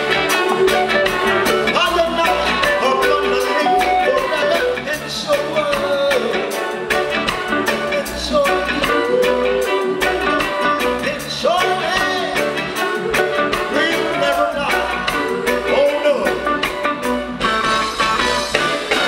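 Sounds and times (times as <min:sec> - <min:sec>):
live reggae band playing: 0:00.0 - 0:19.0
man singing into microphone: 0:01.6 - 0:06.6, 0:07.7 - 0:16.6.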